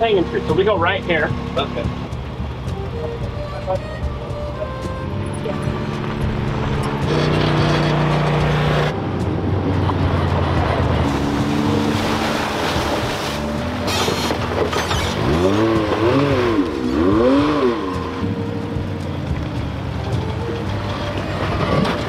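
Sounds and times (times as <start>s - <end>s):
engine revving: 0.0s - 2.7s, 4.8s - 22.0s
off-road vehicle engines running: 0.0s - 22.0s
water splashing from tires: 5.5s - 22.0s.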